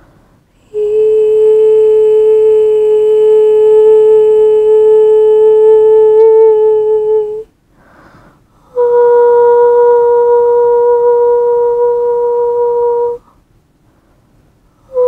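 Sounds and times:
solo flute long notes: 8.8 - 13.2.

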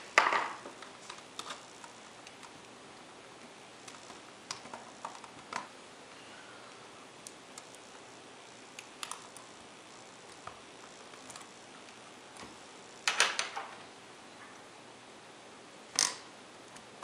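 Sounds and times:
keyboard clicks and rattles: 0.8 - 2.6.

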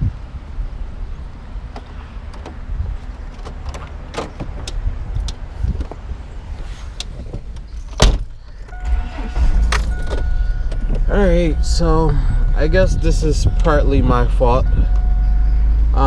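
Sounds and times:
car door shutting: 7.0 - 13.9
steady high tone: 8.6 - 16.0.

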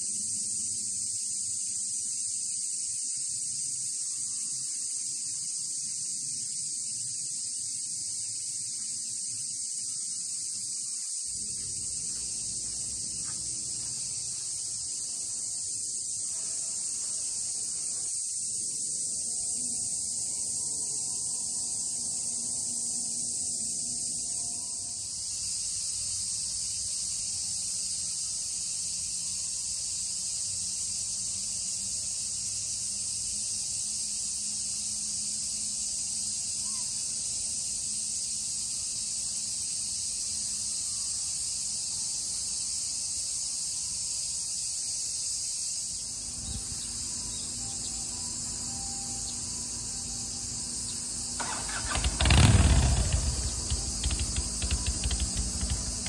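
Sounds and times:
high-pitched outdoor hiss: 0.0 - 56.0
vehicle passing by: 48.4 - 56.0.

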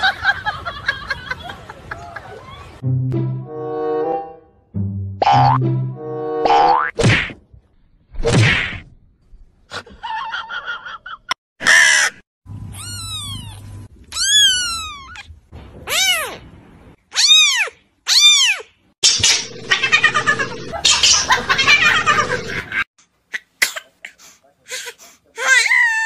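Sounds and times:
kitten meowing: 12.7 - 15.3, 15.9 - 16.4, 17.1 - 18.6.

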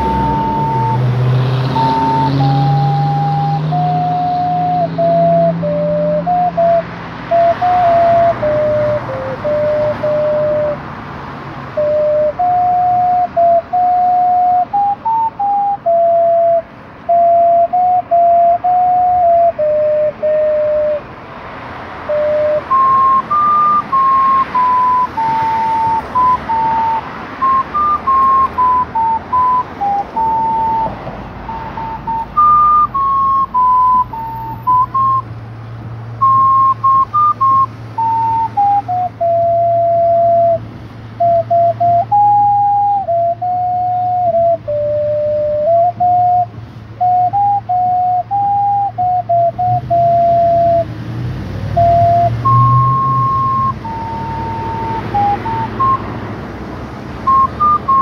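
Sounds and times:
small wind instrument melody: 0.0 - 35.4, 36.0 - 58.0.

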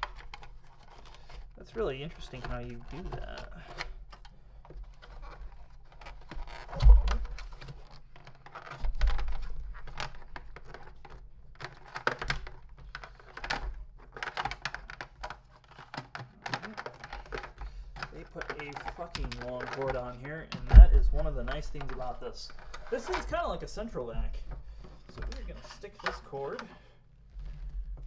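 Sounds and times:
plastic parts clicking and knocking: 0.0 - 26.8
dull thump: 6.7 - 7.4, 20.6 - 21.5.

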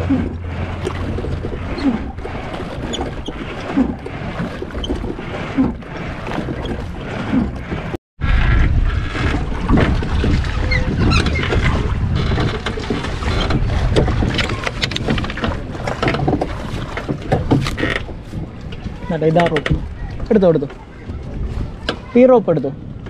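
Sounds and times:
water noise: 0.0 - 23.0
wind rumbling on microphone: 0.0 - 23.0.

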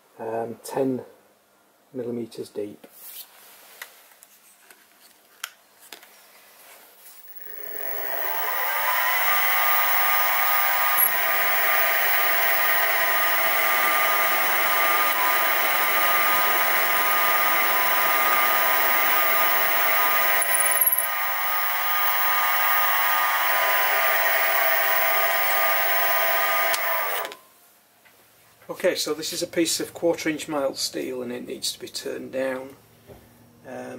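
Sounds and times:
drill bit boring into metal: 7.2 - 27.4
mill spindle whining: 7.2 - 27.4
click: 26.7 - 27.4.

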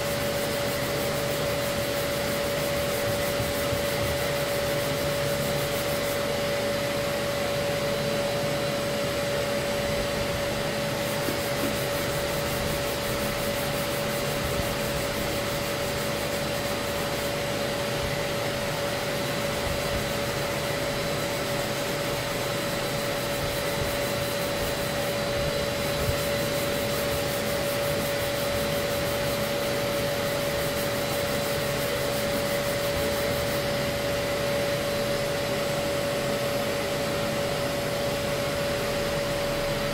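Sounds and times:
orbital sander whining: 0.0 - 19.0
dust extraction vacuum hiss: 0.0 - 39.9.

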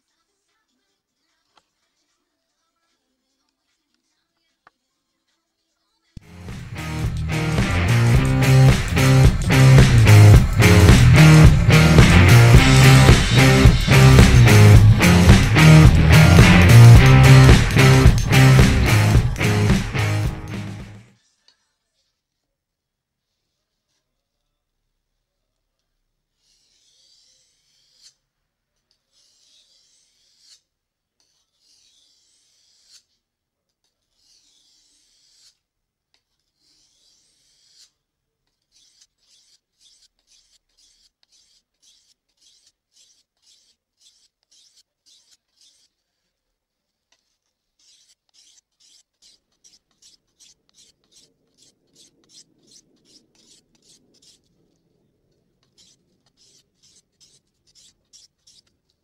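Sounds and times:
knife scraping on whetstone: 26.4 - 28.2, 28.9 - 54.6, 55.6 - 59.0.

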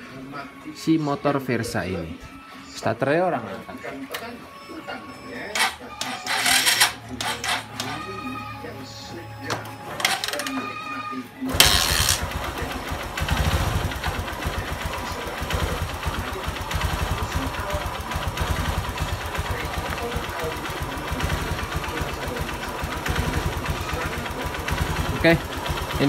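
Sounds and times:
motorcycle engine idling: 11.5 - 26.0.

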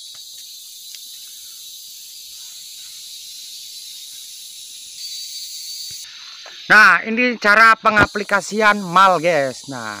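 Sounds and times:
insects chorus shrill hiss: 0.0 - 10.0.

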